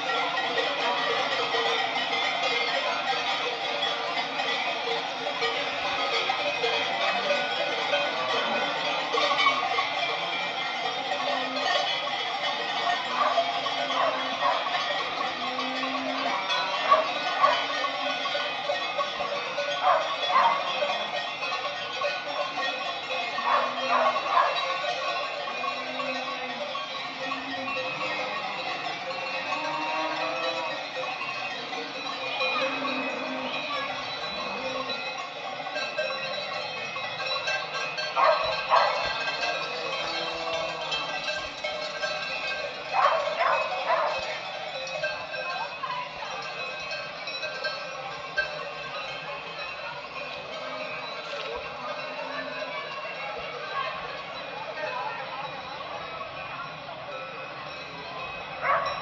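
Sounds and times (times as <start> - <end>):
cowbells clanging: 0.0 - 59.0
dog barking: 13.2 - 14.7, 16.9 - 17.7, 19.8 - 20.7, 23.4 - 24.7, 38.2 - 39.1, 43.0 - 44.2, 58.6 - 59.0.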